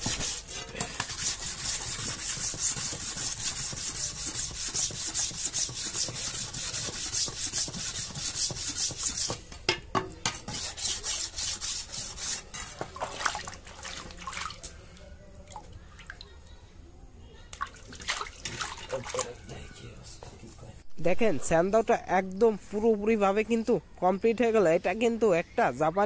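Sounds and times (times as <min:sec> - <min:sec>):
stone rasping on steel blade: 0:00.0 - 0:09.4, 0:10.3 - 0:12.8
water splashing: 0:13.0 - 0:16.3, 0:17.5 - 0:19.4.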